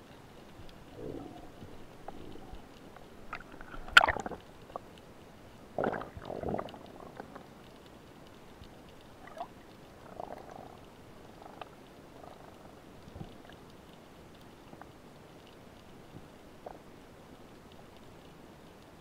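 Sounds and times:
faint clicks: 0.0s - 19.0s
bubbling water rushes: 0.9s - 4.8s, 5.7s - 7.4s.

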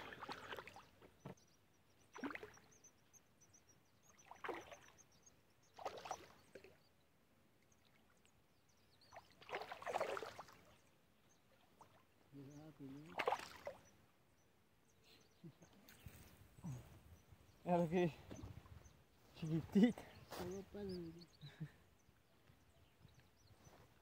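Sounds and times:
fish splashing in water: 0.0s - 1.0s, 2.1s - 2.6s, 4.2s - 5.0s, 5.8s - 6.7s, 9.2s - 10.7s, 13.1s - 13.8s.

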